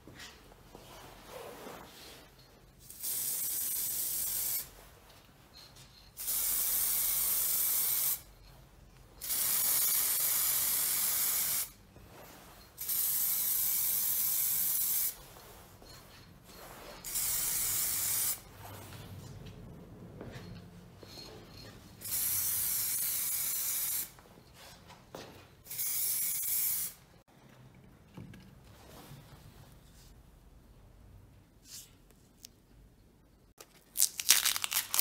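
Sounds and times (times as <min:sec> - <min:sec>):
spray paint can hissing: 0:02.9 - 0:04.7, 0:06.2 - 0:08.2, 0:09.2 - 0:11.8, 0:12.8 - 0:15.2, 0:17.0 - 0:18.4, 0:22.0 - 0:24.1, 0:25.7 - 0:27.0.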